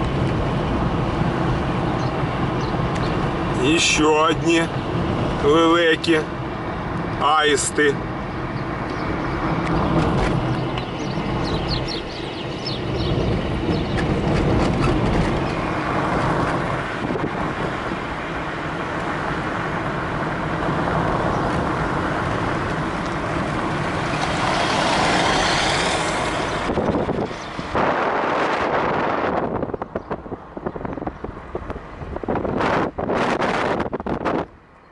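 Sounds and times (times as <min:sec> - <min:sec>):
engine and tyre rumble: 0:00.0 - 0:34.9
loud rushing noise: 0:23.4 - 0:29.6.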